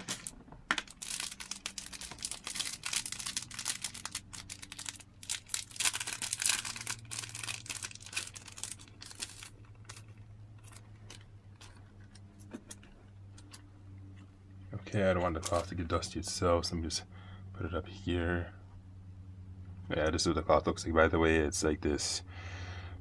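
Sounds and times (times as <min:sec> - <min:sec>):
plastic packet crinkling and tearing: 0:00.0 - 0:13.6.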